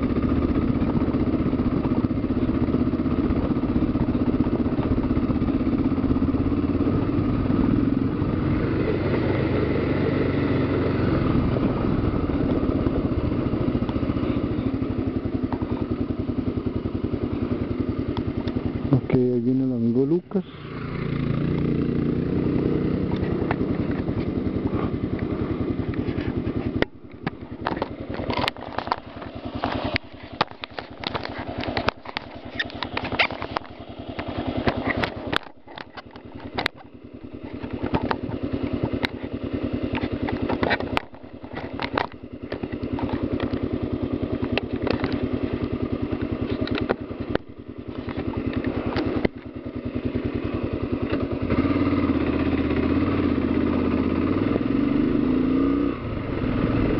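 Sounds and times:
motorcycle engine revving: 0:00.0 - 0:56.9
knocks and rattles over stones: 0:27.2 - 0:33.7.

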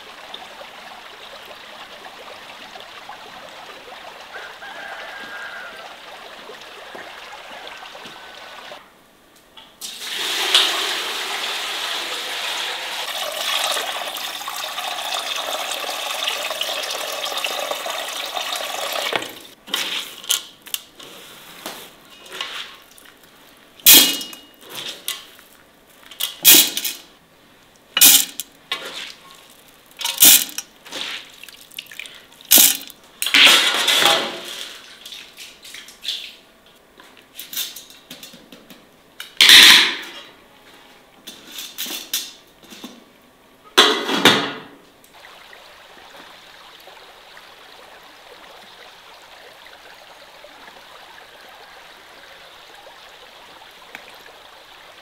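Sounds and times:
water pouring into bucket: 0:09.8 - 0:19.2, 0:30.2 - 0:32.8
grains clattering into pot: 0:28.0 - 0:29.0, 0:30.0 - 0:31.2, 0:32.5 - 0:34.6.

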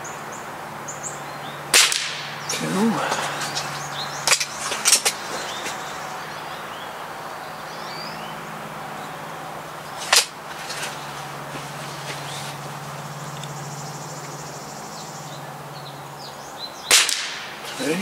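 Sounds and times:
air rifle shot: 0:01.7 - 0:02.3, 0:16.9 - 0:17.5.

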